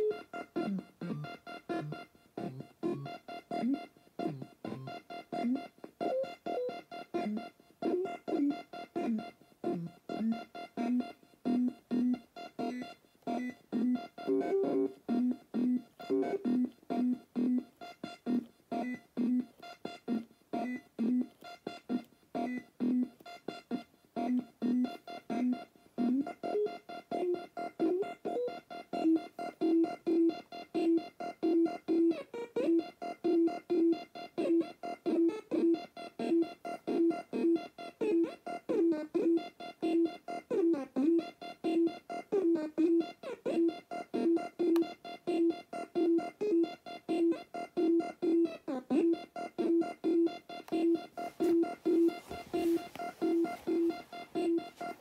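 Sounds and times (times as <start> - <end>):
steady high tone: 49.6 - 55.0.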